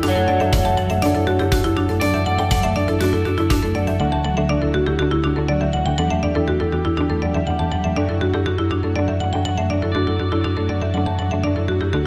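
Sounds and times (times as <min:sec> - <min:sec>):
fast run of struck notes: 0:00.0 - 0:04.0
sustained bass: 0:00.0 - 0:08.2.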